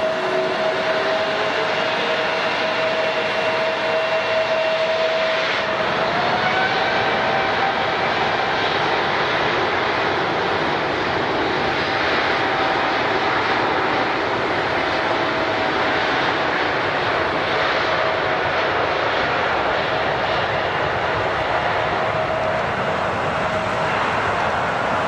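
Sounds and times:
airliner engines running: 0:00.0 - 0:25.0.

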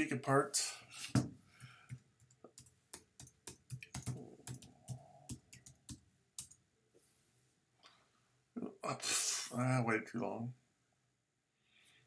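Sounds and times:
typing on computer keyboard: 0:01.6 - 0:06.6.

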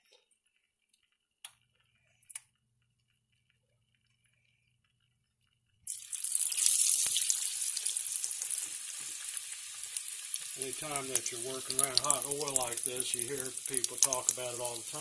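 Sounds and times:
oil sizzling loudly: 0:05.9 - 0:15.0.

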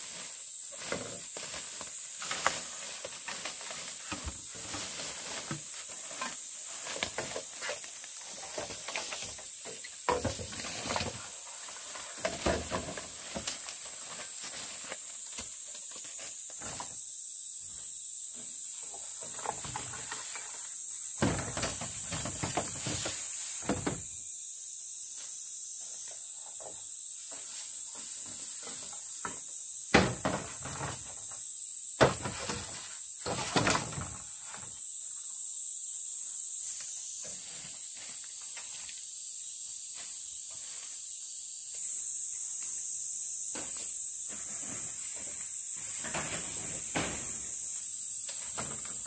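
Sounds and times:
rustling: 0:00.0 - 0:16.6
high-pitched insect drone: 0:00.0 - 0:49.0.

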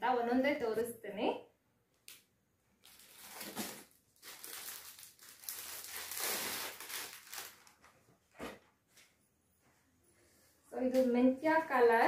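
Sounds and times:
paper bag rustling and crinkling: 0:02.8 - 0:08.6.

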